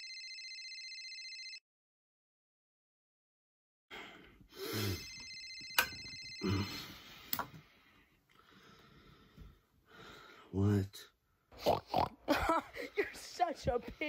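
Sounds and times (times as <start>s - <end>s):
mobile phone ringtone: 0.0s - 1.6s, 4.6s - 7.2s
man groaning sleepily: 3.9s - 5.1s, 6.4s - 7.1s.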